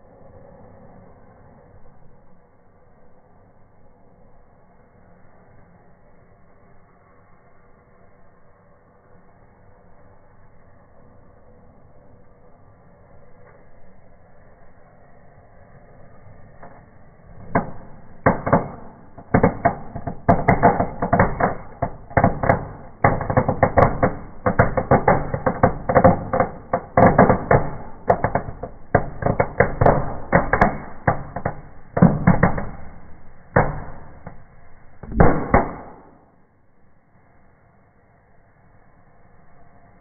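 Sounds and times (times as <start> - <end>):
fireworks cracking and popping: 16.6 - 36.2.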